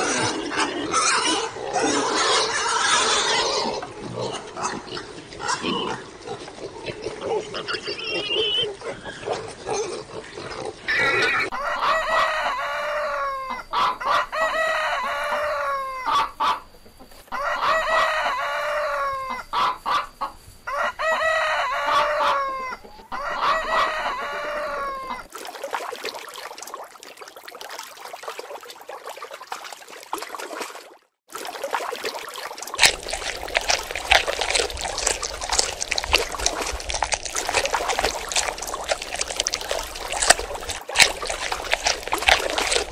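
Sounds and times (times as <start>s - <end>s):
pig grunting: 0.0s - 11.5s, 32.8s - 42.9s
rooster crowing: 10.9s - 16.6s, 17.3s - 19.6s, 20.7s - 25.3s
water splashing and trickling: 25.2s - 42.9s.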